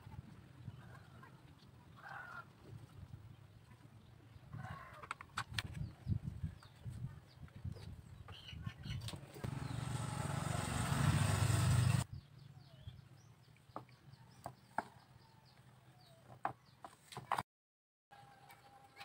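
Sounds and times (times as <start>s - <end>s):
engine rumble with hiss: 9.4s - 12.0s.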